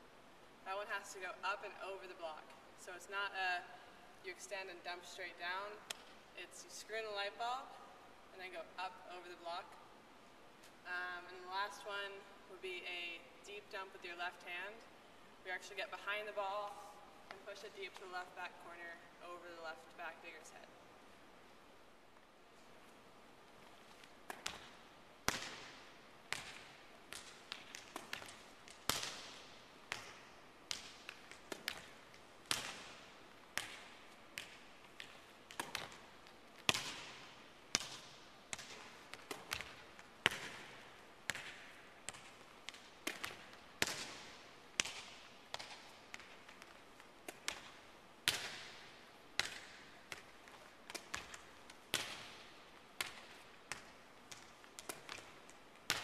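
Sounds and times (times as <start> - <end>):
volleyballs bouncing on hardwood: 23.9 - 56.0.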